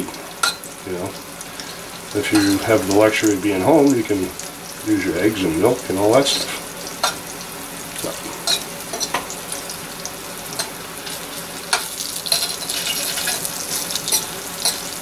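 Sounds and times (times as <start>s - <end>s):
fish frying in hot oil: 0.0s - 15.0s
fork scraping a pan: 8.4s - 9.3s, 11.7s - 14.9s.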